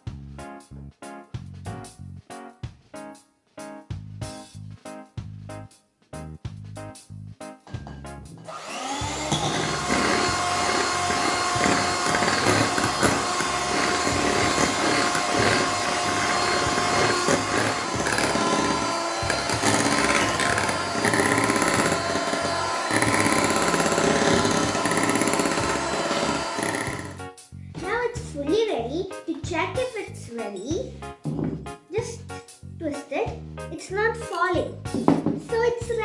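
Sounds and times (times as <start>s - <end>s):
electric hand mixer whining: 8.5s - 27.2s.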